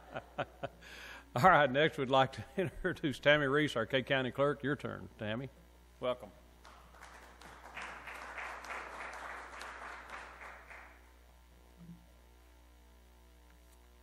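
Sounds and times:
low electrical hum: 0:00.0 - 0:14.0
audience applauding: 0:06.6 - 0:11.0.

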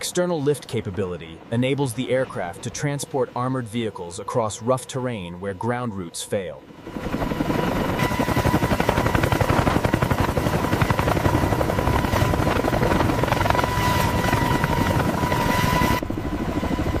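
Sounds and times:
helicopter rotor chopping: 0:00.0 - 0:17.0
high whine: 0:07.8 - 0:16.3.

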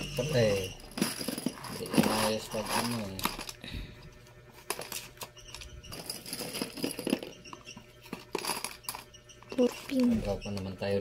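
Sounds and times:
small metal pins clinking: 0:04.6 - 0:10.0.

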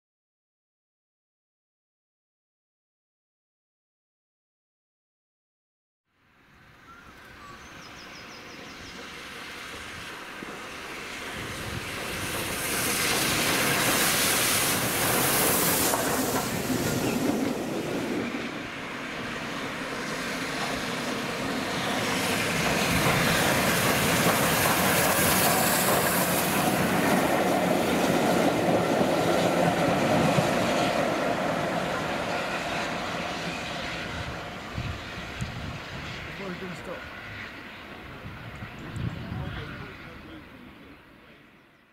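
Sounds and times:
train wheels clattering over rails: 0:08.6 - 0:33.6
steam hissing: 0:09.0 - 0:35.2.

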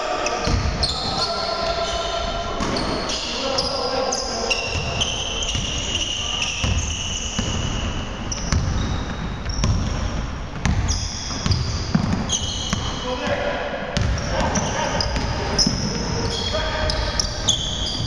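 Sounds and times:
sneakers squeaking on court: 0:00.2 - 0:13.4, 0:14.0 - 0:18.0
basketball bouncing on wood floor: 0:08.3 - 0:13.4.

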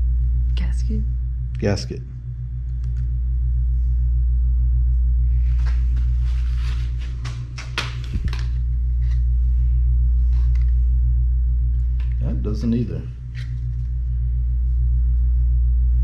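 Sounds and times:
steady low hum: 0:00.0 - 0:16.0
paper rustling: 0:05.5 - 0:09.3.

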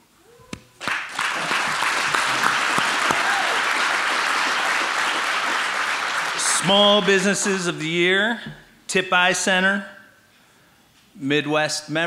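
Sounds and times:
audience applauding: 0:00.8 - 0:07.3.

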